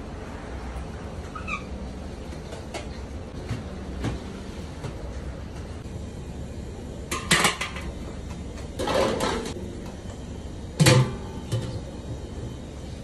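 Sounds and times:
steel pot and basket clanking: 0:07.1 - 0:07.9, 0:08.8 - 0:09.6
metal scraping clank: 0:08.8 - 0:09.6.

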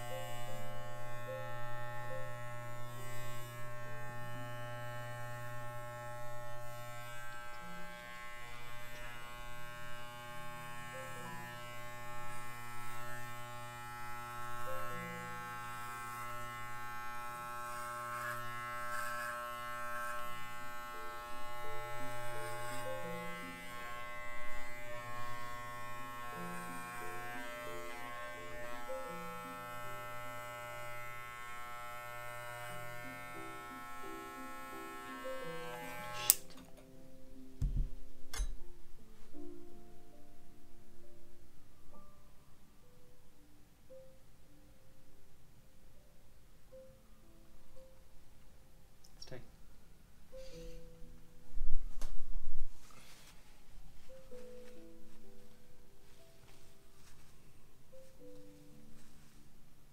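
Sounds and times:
electric clippers buzzing: 0:00.0 - 0:36.5.

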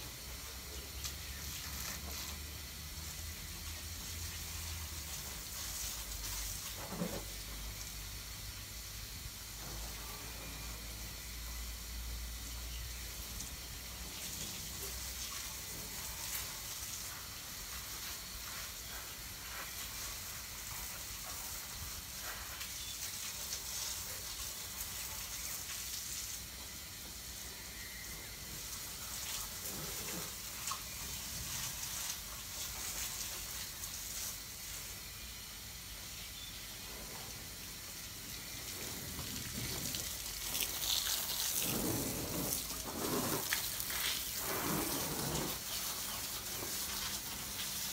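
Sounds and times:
hose spraying water on car: 0:00.0 - 0:47.9.

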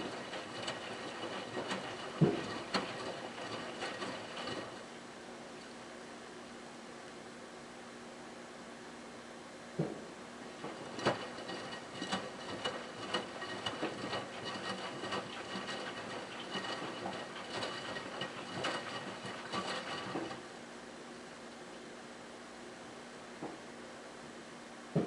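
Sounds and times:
washing machine drum turning: 0:00.0 - 0:04.8, 0:10.6 - 0:20.4.

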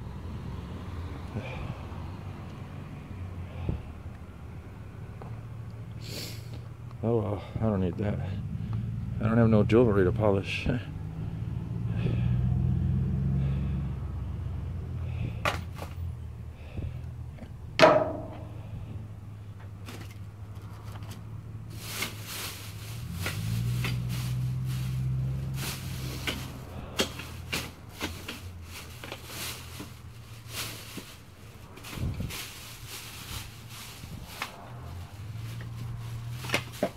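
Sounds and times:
steady low rumble: 0:06.6 - 0:12.2
plastic bags rustling and crinkling: 0:19.8 - 0:36.9.

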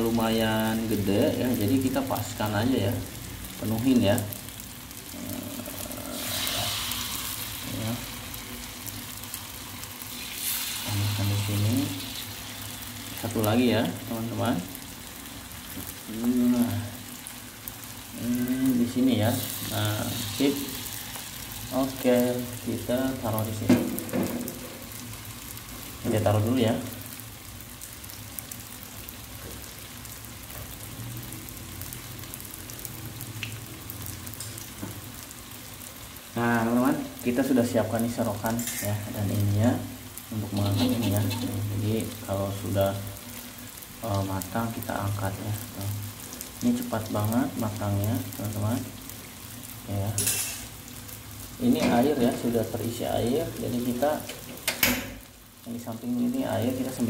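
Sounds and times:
oil sizzling in a wok: 0:00.0 - 0:57.0.

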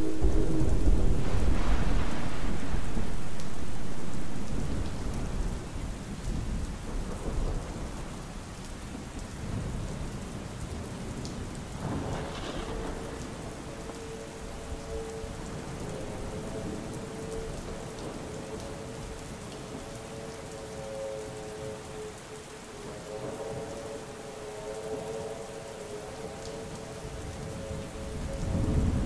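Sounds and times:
distant train horn: 0:00.0 - 0:06.0, 0:11.8 - 0:29.0
thunder rumbling: 0:00.0 - 0:19.8, 0:25.0 - 0:29.0
steady rain: 0:00.0 - 0:29.0.

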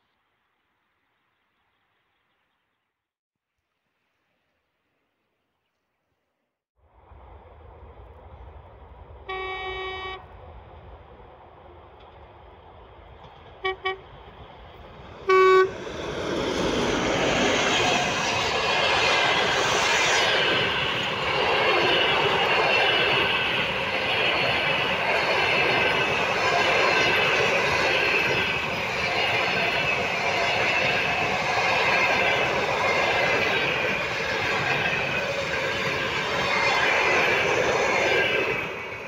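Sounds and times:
train rumbling past on track: 0:06.8 - 0:39.0
locomotive horn blasts: 0:09.3 - 0:10.3, 0:13.6 - 0:14.1, 0:15.2 - 0:15.8.

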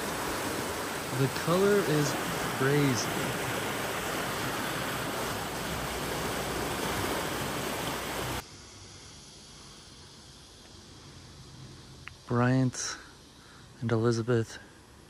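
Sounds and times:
water rushing and churning: 0:00.0 - 0:08.4
faint outdoor background: 0:00.0 - 0:15.0.

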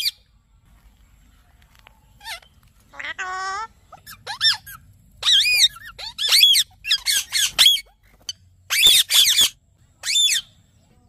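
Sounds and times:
parrot squawking: 0:02.2 - 0:10.5.

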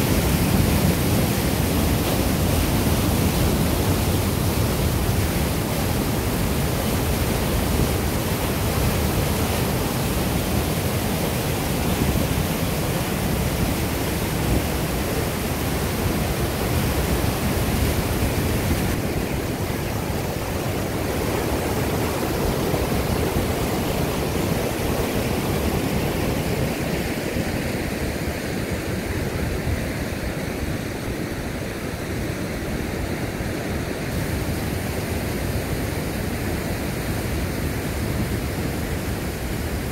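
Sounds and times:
whitewater rushing over a weir: 0:00.0 - 0:39.9.

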